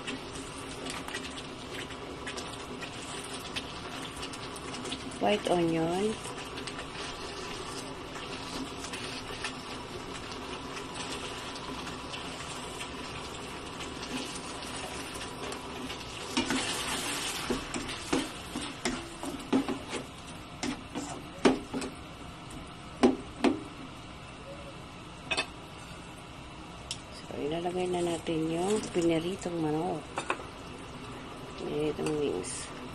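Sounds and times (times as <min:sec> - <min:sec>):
sauce simmering and sizzling: 0:00.0 - 0:22.6.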